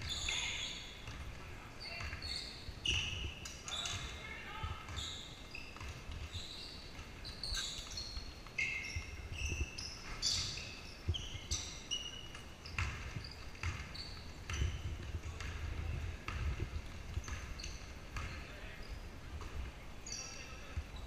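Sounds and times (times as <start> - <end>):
sneakers squeaking on floor: 0.0 - 21.0
basketball bouncing: 1.0 - 2.3, 7.8 - 18.5.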